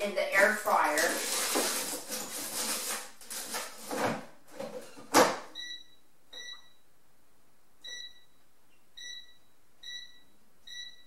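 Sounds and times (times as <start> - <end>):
short beeps from touch panel: 5.6 - 6.8, 7.8 - 8.4, 9.0 - 11.0.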